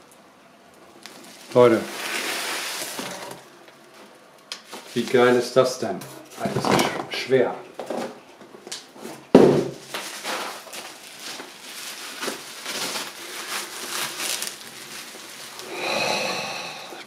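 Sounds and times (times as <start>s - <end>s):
bubble wrap crinkling: 0.8s - 5.6s, 9.8s - 16.6s
package thumping down on board: 9.3s - 10.4s.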